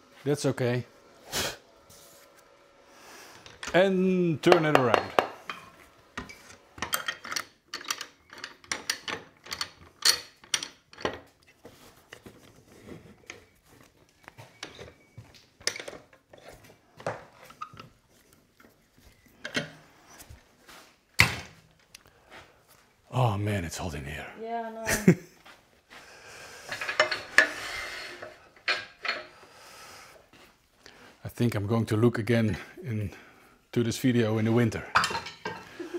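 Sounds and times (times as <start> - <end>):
lathe chuck jaws clicking and rattling: 6.8 - 11.1.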